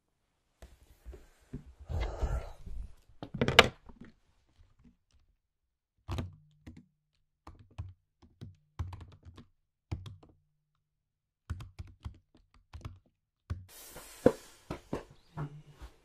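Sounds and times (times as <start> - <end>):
laptop keyboard typing: 6.1 - 10.4, 11.4 - 13.6.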